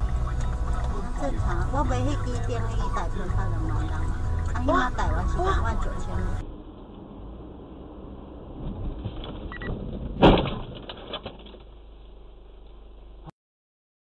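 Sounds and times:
low cabin hum: 0.0s - 13.3s
car collision bang: 8.3s - 12.2s
crunching rattle: 8.9s - 12.8s.

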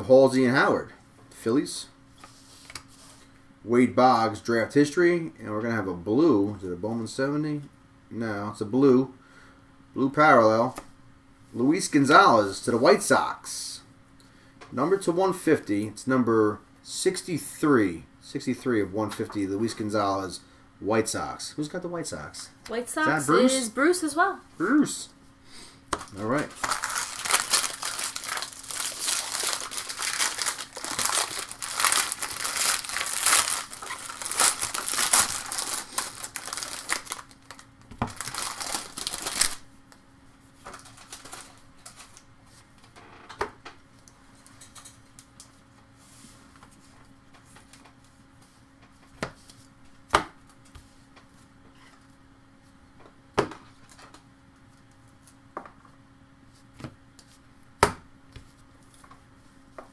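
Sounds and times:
handling of cards: 25.9s - 39.6s
wrapper crinkling and tearing: 26.0s - 39.7s, 40.7s - 42.2s.

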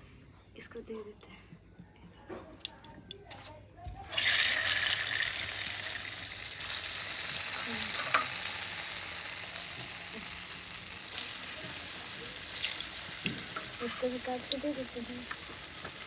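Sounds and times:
food sizzling in hot oil: 4.1s - 16.0s.

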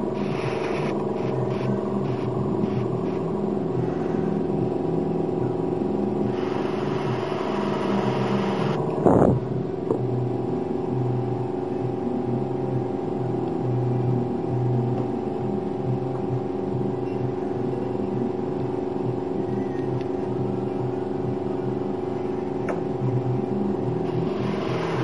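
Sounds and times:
air hissing through airbrush: 0.0s - 4.5s, 6.2s - 9.4s, 24.1s - 25.0s
airbrush compressor running: 0.0s - 4.8s, 6.1s - 9.4s, 24.0s - 25.0s.

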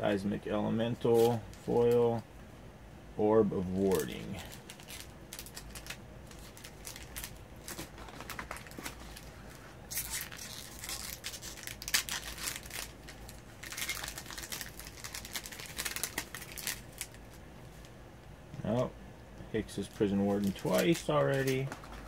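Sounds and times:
cards being handled: 1.1s - 2.0s, 20.3s - 22.0s
foil wrapper crinkling and tearing: 3.8s - 17.4s, 20.0s - 22.0s.

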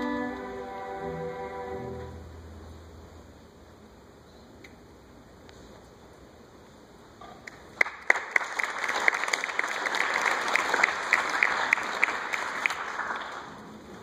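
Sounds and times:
audience applauding: 7.8s - 13.8s.

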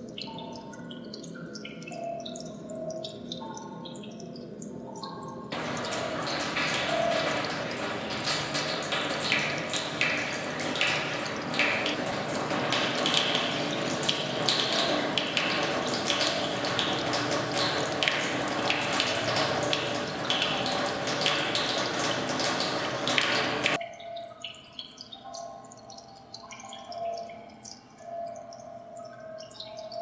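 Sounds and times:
water drips: 0.0s - 30.0s
tap water splashing into sink: 5.5s - 23.8s.

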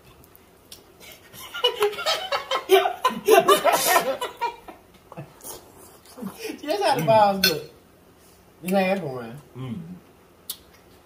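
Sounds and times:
men laughing: 1.3s - 5.3s.

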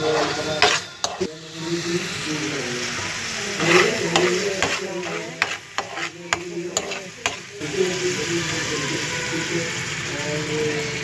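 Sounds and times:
spatula tapping and scraping pan: 0.0s - 1.3s, 3.0s - 7.5s
food sizzling in frying pan: 0.0s - 11.0s.

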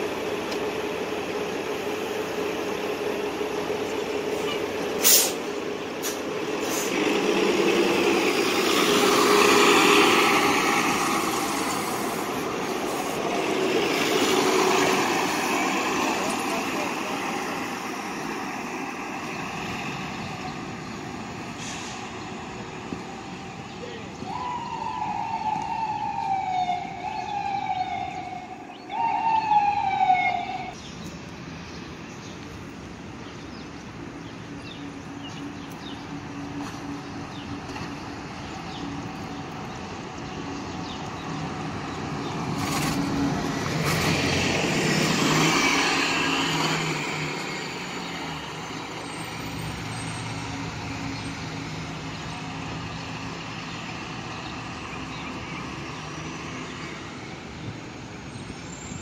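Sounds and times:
bus and traffic engines: 0.0s - 59.0s
emergency vehicle siren: 22.6s - 30.8s, 43.1s - 56.2s
vehicle passing: 40.3s - 57.4s.

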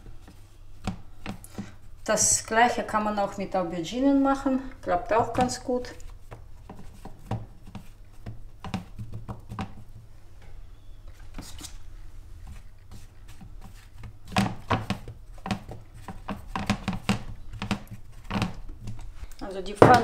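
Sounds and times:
soft taps and rustles in a bowl: 4.7s - 11.8s
knocks on a plastic bowl: 19.8s - 20.0s.

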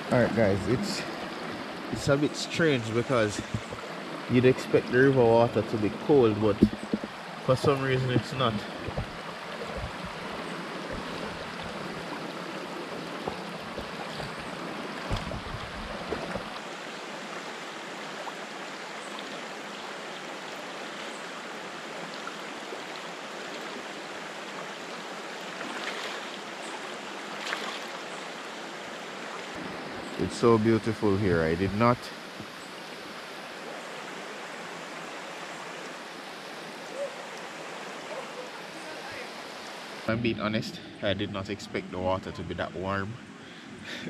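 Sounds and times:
river rushing over stones: 0.0s - 44.0s
low bumps and rumble: 3.3s - 3.8s, 6.5s - 10.2s, 13.2s - 16.5s
feet splashing in water: 8.0s - 16.6s, 25.6s - 26.4s, 27.4s - 27.9s.

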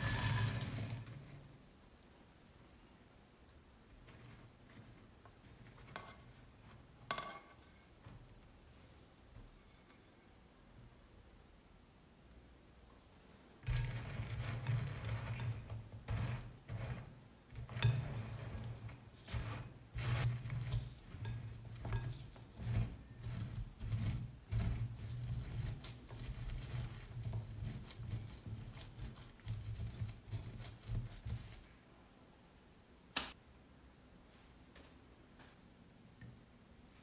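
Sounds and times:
spatula scraping glass bowl: 0.0s - 1.4s, 4.1s - 6.4s, 13.6s - 31.6s.

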